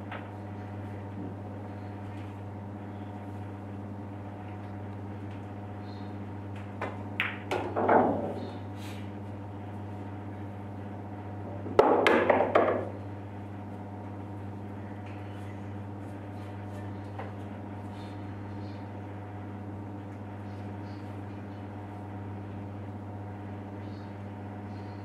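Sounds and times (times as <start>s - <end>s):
pool balls clacking: 6.5s - 8.6s, 11.6s - 13.0s
loud knock with rattling clatter: 7.5s - 8.4s, 11.7s - 12.9s.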